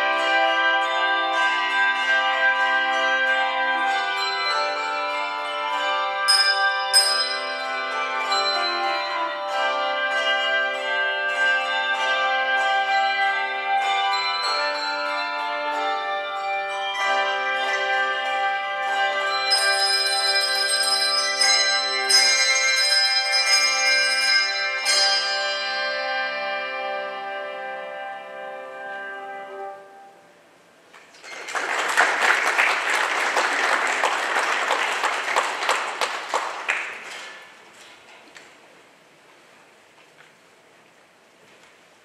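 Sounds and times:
handbell choir ringing chords: 0.0s - 29.8s
congregation applauding: 31.0s - 37.7s.

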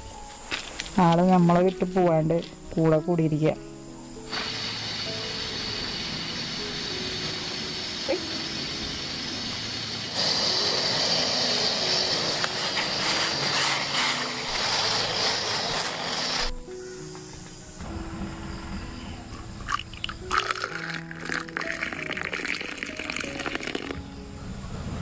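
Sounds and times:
tea bubbling: 4.3s - 13.6s, 19.3s - 24.0s
gas burner hissing: 4.3s - 16.6s.

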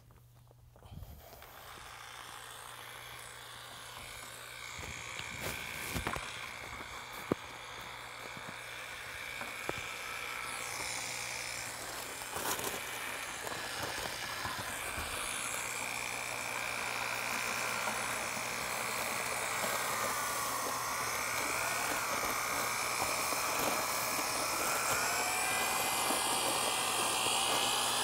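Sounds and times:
electric paddle mixer whining: 0.8s - 28.0s.

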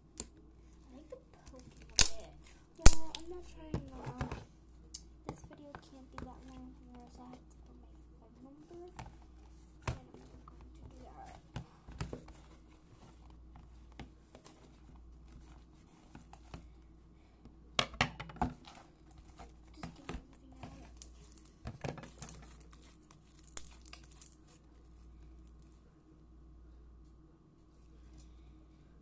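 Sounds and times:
plastic crinkling: 18.5s - 25.8s.

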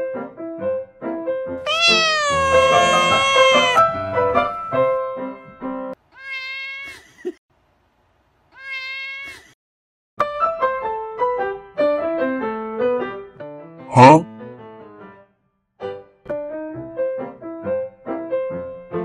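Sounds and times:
cat meowing: 1.7s - 4.1s, 6.2s - 7.0s, 8.6s - 9.5s
piano music: 1.8s - 6.0s, 10.2s - 15.2s.

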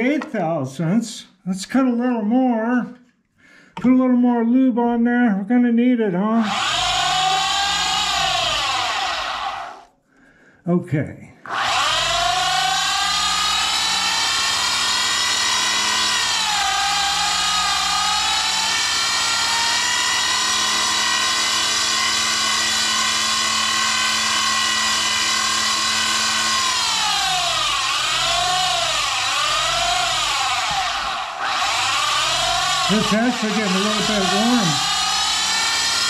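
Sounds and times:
lathe motor whine: 6.4s - 9.8s, 11.5s - 36.0s.

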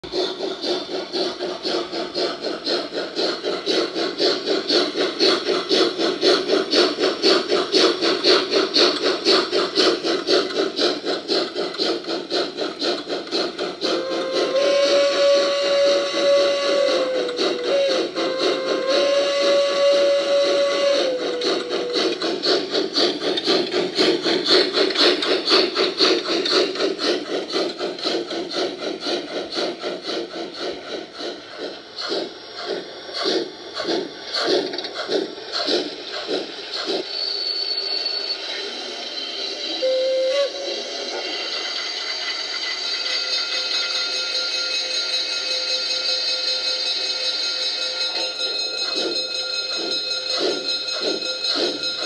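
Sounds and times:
rhythmic steam chuffing: 0.0s - 52.0s
steady steam hiss: 0.0s - 52.0s
steam whistle: 13.8s - 22.2s, 39.4s - 41.2s
brief high squeal: 37.1s - 42.3s.

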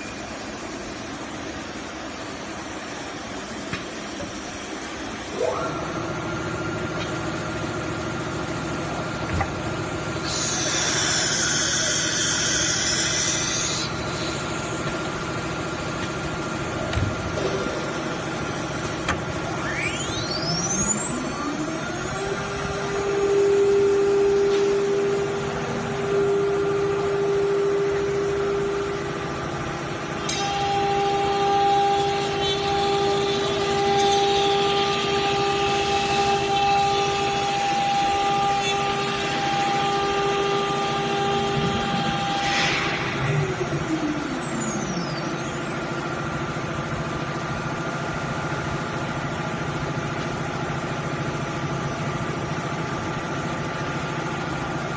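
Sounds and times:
machine drone: 0.0s - 54.9s
router spindle whine: 5.3s - 48.4s.

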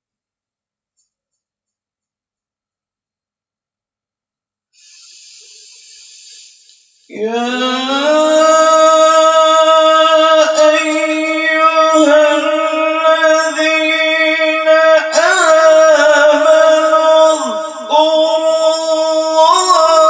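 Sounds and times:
man chanting: 7.1s - 20.0s.

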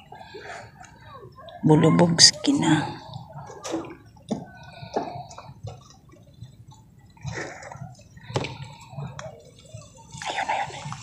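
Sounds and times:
water dripping and splashing: 3.1s - 11.0s.

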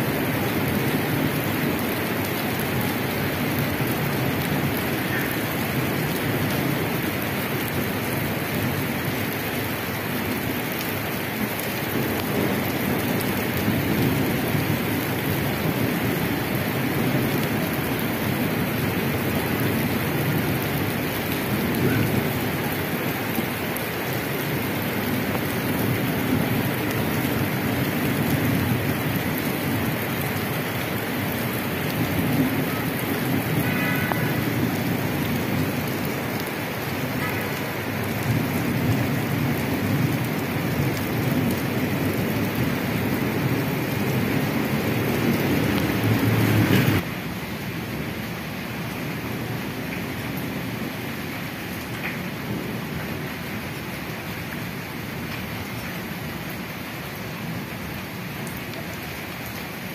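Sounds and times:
rain on wet asphalt: 0.0s - 59.9s
rain splashing into puddles: 0.0s - 59.9s.

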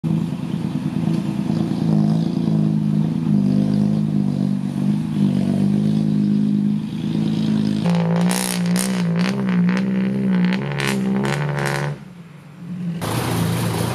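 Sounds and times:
engine clatter and rattle: 0.0s - 12.0s, 13.0s - 13.9s
truck engine running: 0.0s - 13.9s.

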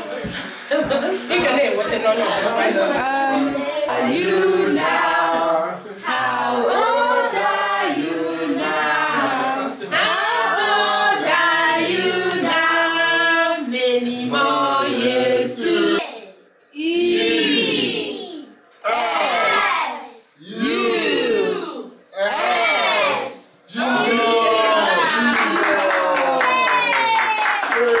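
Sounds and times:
group singing unaccompanied: 1.4s - 16.0s, 18.8s - 23.4s.

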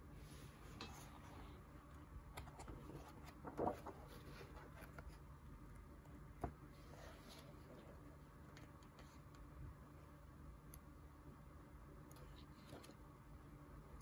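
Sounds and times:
pages turning: 2.4s - 5.2s.

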